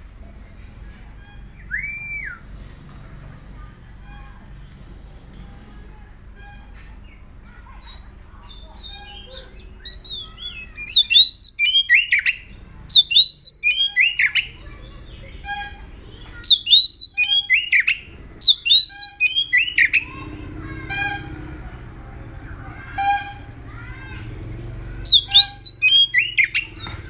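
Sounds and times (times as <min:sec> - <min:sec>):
bird singing whistled notes: 0:01.4 - 0:02.4, 0:07.9 - 0:15.7, 0:16.4 - 0:20.1, 0:25.0 - 0:27.0.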